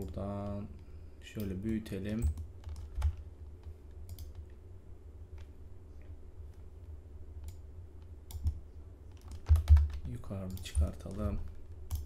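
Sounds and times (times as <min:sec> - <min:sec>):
steady low hum: 0:00.0 - 0:12.0
computer mouse and keyboard clicks: 0:01.4 - 0:04.5, 0:07.4 - 0:12.0.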